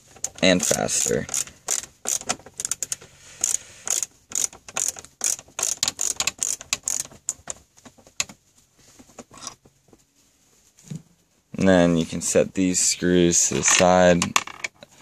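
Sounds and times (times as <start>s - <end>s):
ratcheting screwdriver clicking: 0.2s - 7.6s.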